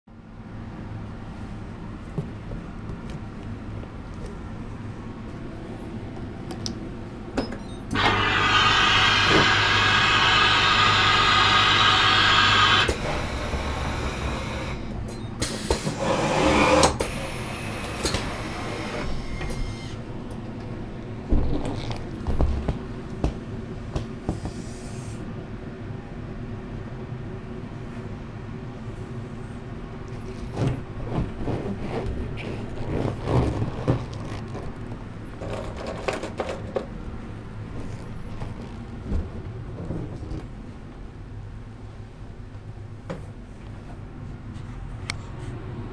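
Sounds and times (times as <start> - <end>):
air pump running: 8.0 - 20.0
balloons rubbing and squeaking: 31.0 - 35.6.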